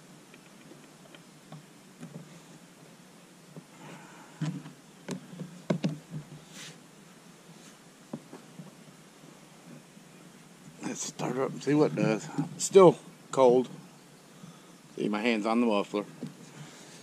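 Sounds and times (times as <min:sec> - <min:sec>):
short scrape: 0:06.4 - 0:06.8.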